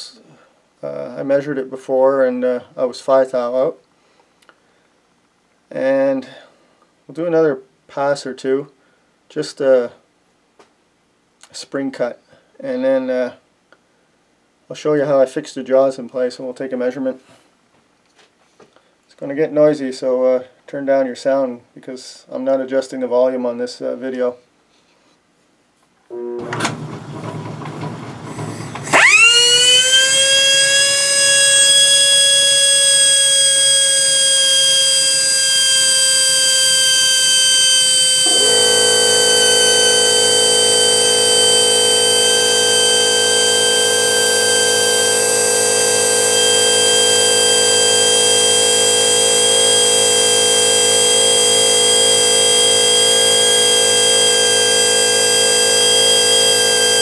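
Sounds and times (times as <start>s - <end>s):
lathe low tones: 26.1s - 57.0s
die grinder high-pitched whine: 28.2s - 57.0s.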